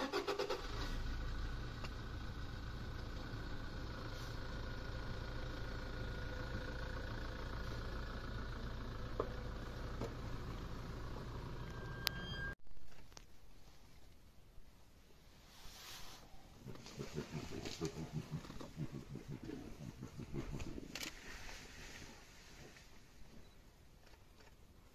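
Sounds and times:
car engine starting and idling: 0:00.0 - 0:12.6.

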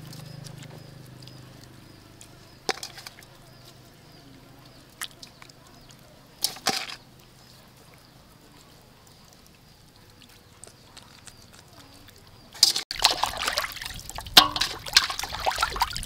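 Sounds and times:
knocks and slaps against bowl: 0:14.4 - 0:15.2.

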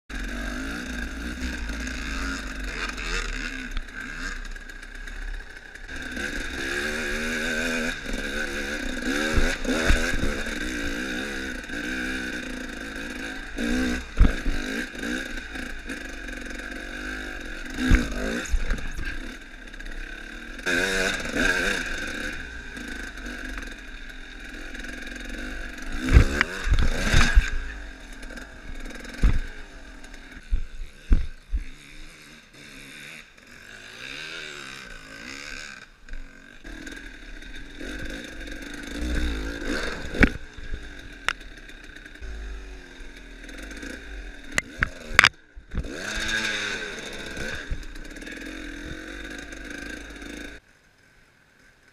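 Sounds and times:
dirt bike engine revving: 0:00.1 - 0:50.6
bike knocking on bumps: 0:13.6 - 0:15.2.

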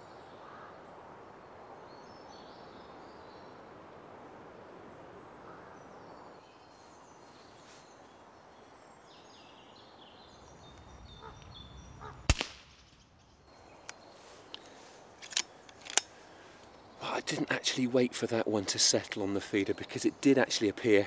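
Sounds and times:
birds chirping: 0:05.0 - 0:21.0
air rifle shot: 0:12.2 - 0:13.1
faint clicks: 0:13.8 - 0:16.8.

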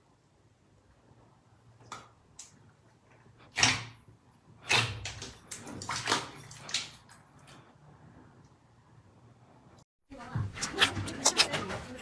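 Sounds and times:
slime wet squelches: 0:10.5 - 0:12.0.

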